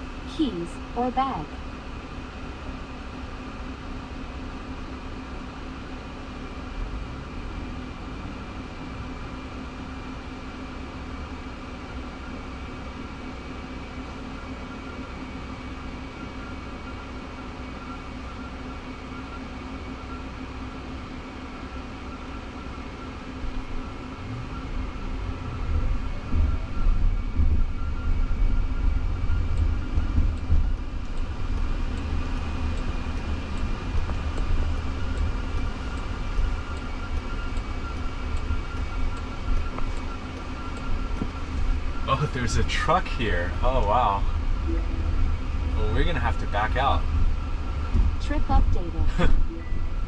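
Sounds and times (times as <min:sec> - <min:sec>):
car cabin hum: 0:00.0 - 0:06.7, 0:08.6 - 0:50.0
road and tyre rumble: 0:00.0 - 0:50.0
electronic tones: 0:23.6 - 0:50.0.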